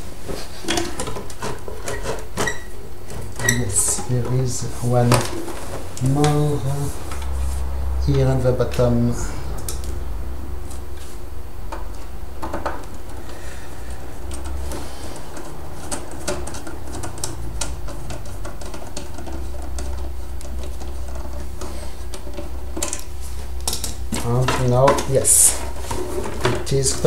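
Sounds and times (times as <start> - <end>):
steady low hum: 0.0 - 27.0
metal scrapes: 1.4 - 12.2.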